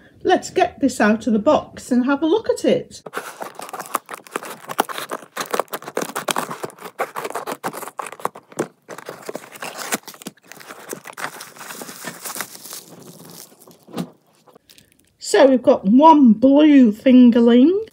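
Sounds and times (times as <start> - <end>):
wrapping rustling: 3.0 - 15.2
cardboard flaps opening: 3.1 - 14.6
scissors cutting tape: 3.4 - 11.1.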